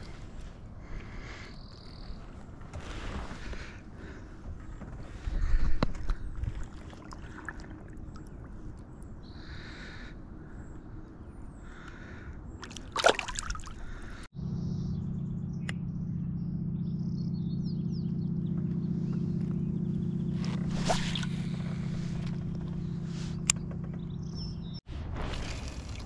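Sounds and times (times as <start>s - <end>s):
birds calling: 0.0s - 24.9s
steady low rumble: 13.8s - 26.0s.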